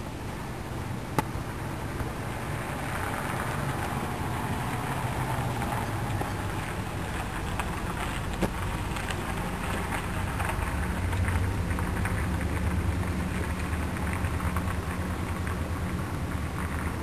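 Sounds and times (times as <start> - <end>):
car engine hum: 0.0 - 17.0
steady hiss: 0.0 - 17.0.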